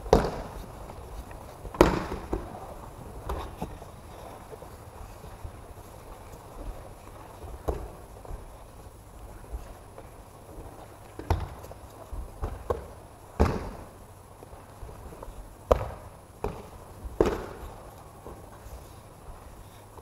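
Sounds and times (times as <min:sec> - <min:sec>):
bodies thudding on mats: 0:00.0 - 0:04.4, 0:06.6 - 0:08.6, 0:11.2 - 0:14.0, 0:14.9 - 0:17.8.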